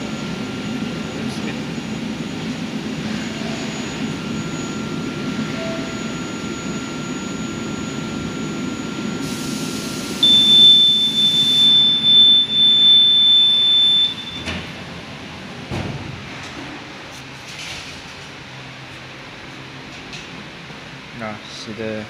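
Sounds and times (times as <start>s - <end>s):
blower rushing air: 0.0s - 16.3s
loud high buzzer tone: 3.4s - 14.6s
faint whistle: 10.2s - 14.4s.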